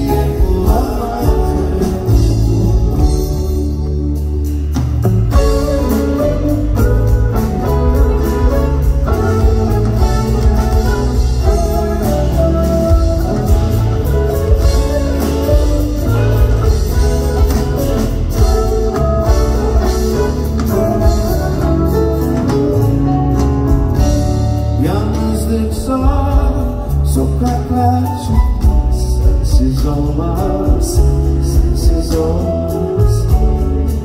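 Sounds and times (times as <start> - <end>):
electric guitar lead: 0.0 - 26.9
double bass: 0.0 - 34.0
drums: 0.0 - 34.0.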